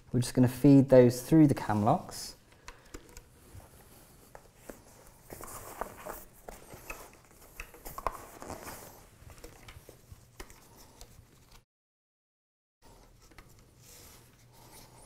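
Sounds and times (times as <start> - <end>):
harness strap clicks and rustling: 5.3 - 11.6.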